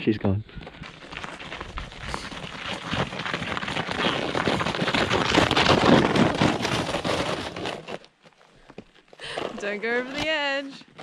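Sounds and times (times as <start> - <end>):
sliding down slushy slope: 0.8 - 8.1.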